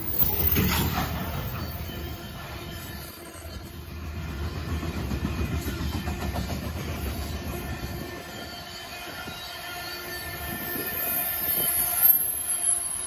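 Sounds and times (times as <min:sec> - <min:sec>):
freight train rumbling: 0:00.0 - 0:13.0
train wheels squealing: 0:00.0 - 0:13.0.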